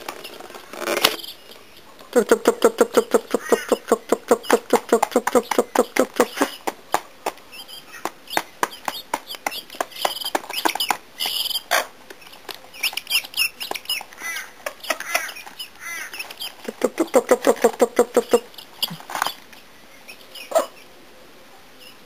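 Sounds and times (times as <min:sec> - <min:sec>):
birds pecking on metal pan: 0:03.0 - 0:19.6.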